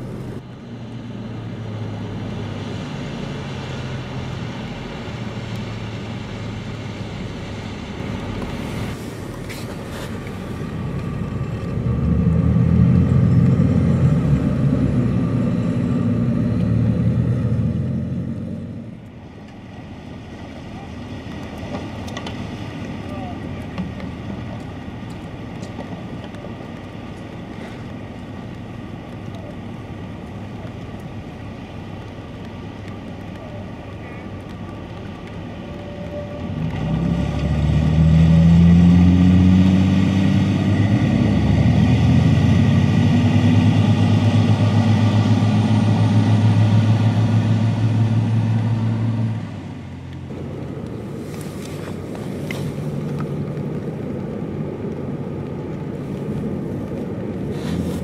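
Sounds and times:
boat engines running: 18.9s - 38.8s, 40.5s - 58.0s.

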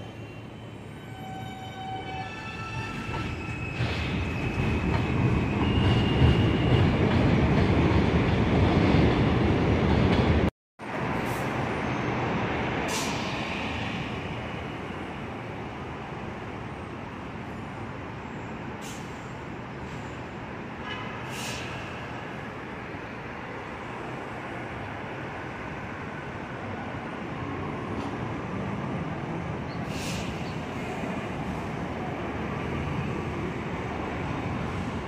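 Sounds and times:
train wheels rumbling on rails: 1.3s - 15.2s.

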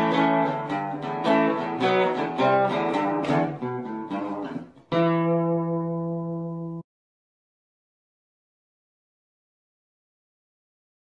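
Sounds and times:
acoustic guitar strumming: 0.0s - 6.8s.

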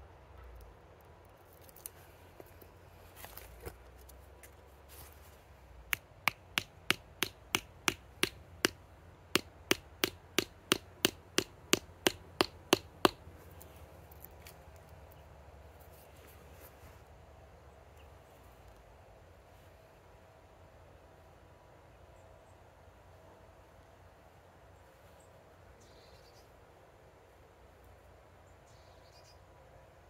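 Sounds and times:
hammer tapping on log: 5.9s - 13.2s.

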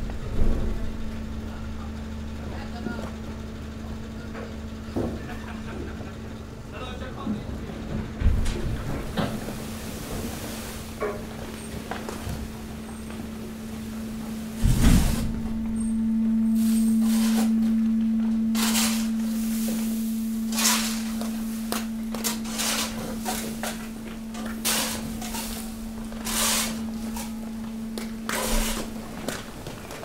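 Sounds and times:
hydraulic hum: 0.0s - 30.0s.

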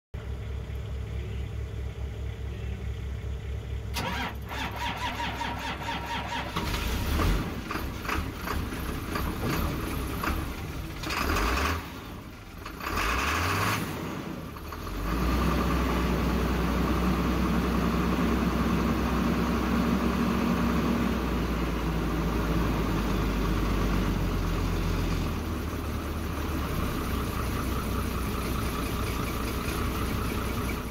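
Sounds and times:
diesel truck engine running: 0.2s - 30.9s
starter cranking engine: 4.0s - 11.9s.

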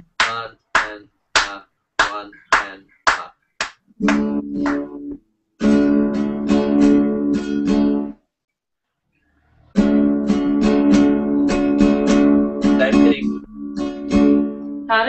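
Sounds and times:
acoustic guitar strumming: 4.0s - 8.2s, 9.7s - 15.0s.

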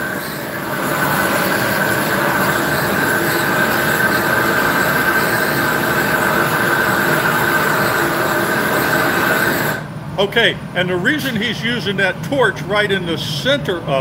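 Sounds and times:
gas torch rushing with whistle: 0.0s - 9.9s.

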